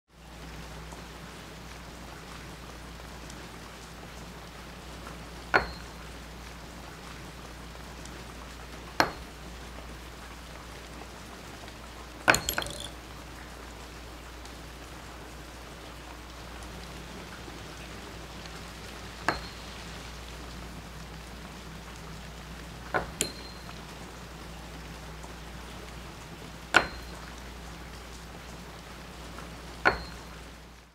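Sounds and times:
steady rain falling: 0.1s - 30.9s
metal ring clinking on hook: 12.3s - 13.0s.

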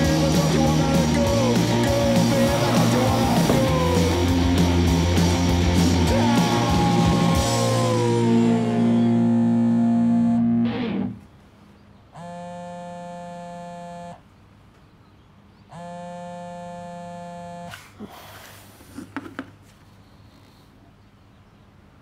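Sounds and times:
phone vibrating on wooden table: 8.9s - 10.6s, 12.2s - 14.2s, 15.7s - 17.7s.

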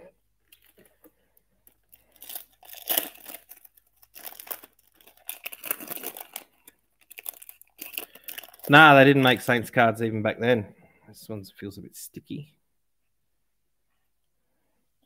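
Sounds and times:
foil wrapper tearing and crinkling: 1.6s - 9.4s.

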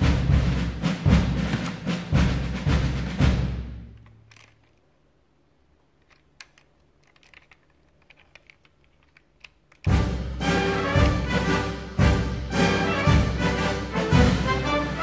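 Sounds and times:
plastic toy clicks and taps: 4.0s - 4.8s, 6.0s - 10.0s
background music: 9.8s - 15.0s.

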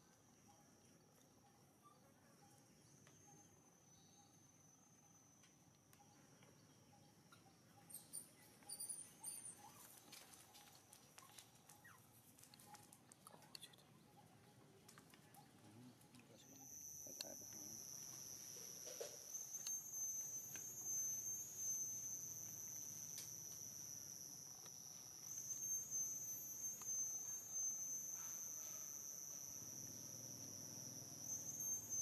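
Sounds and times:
insects buzzing: 0.0s - 32.0s
faint ticks: 5.4s - 6.7s, 10.0s - 32.0s.

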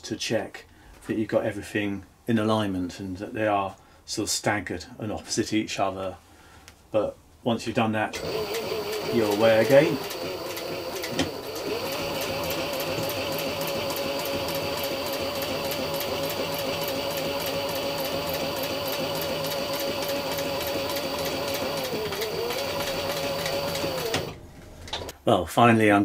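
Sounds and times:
sewing machine stitching: 8.2s - 25.1s.

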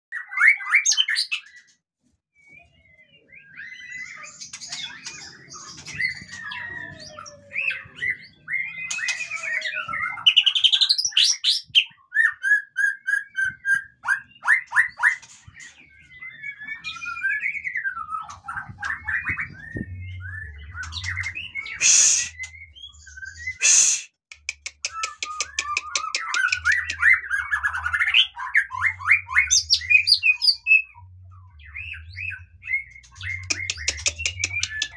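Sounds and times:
bird singing whistles and trills: 2.4s - 34.9s
harsh bird bursts: 21.8s - 22.5s, 23.6s - 24.2s.

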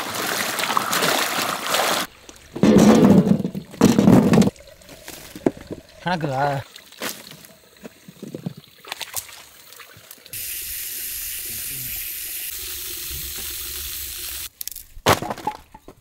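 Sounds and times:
water spray hissing: 10.3s - 14.5s.

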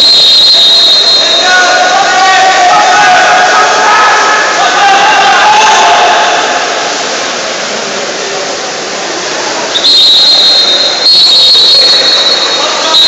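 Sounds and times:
referee's whistle blasts: 0.0s - 2.0s, 9.7s - 13.0s
noisy pool-hall din: 0.0s - 13.0s.

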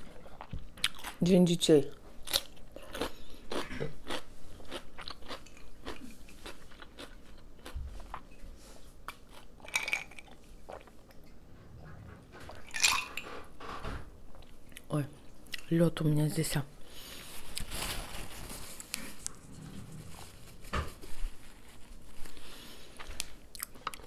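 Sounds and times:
crunchy chewing of cucumber: 2.2s - 8.3s.

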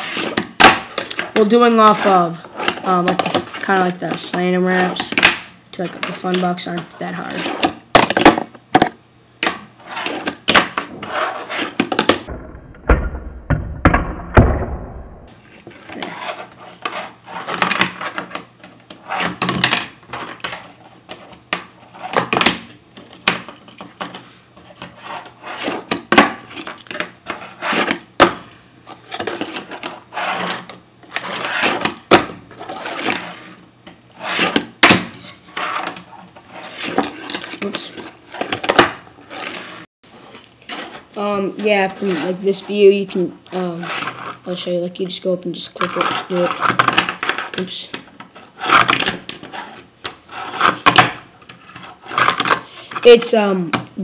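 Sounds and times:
fingerboard scraping and rolling: 0.0s - 4.0s, 9.5s - 12.3s, 15.3s - 22.5s, 23.1s - 42.8s, 48.2s - 52.7s
low rumble: 12.3s - 15.3s.

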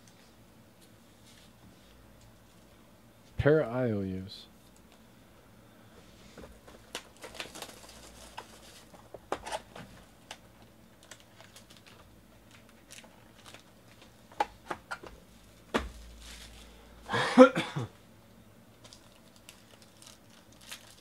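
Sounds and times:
plastic wrapping rustling: 6.6s - 14.1s, 15.8s - 16.8s, 18.8s - 21.0s.

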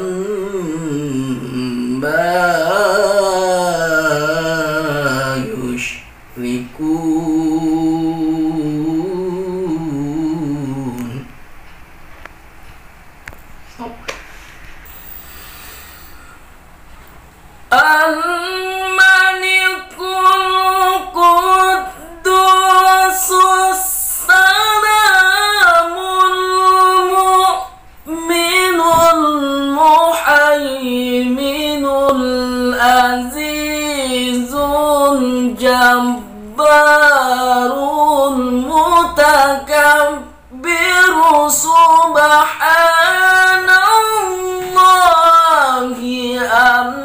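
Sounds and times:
man reciting melodically: 0.0s - 11.4s, 17.7s - 47.0s.

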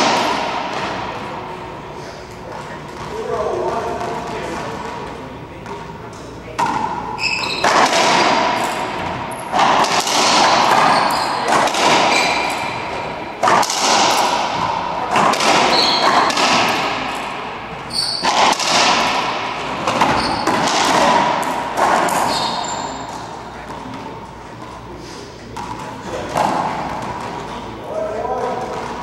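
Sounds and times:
racquetball ball cracking off walls: 6.5s - 17.4s, 18.1s - 23.8s
sneakers squeaking on hardwood: 7.1s - 7.9s, 8.6s - 13.1s, 15.5s - 16.5s, 17.8s - 18.5s, 19.6s - 21.0s, 21.8s - 23.8s.

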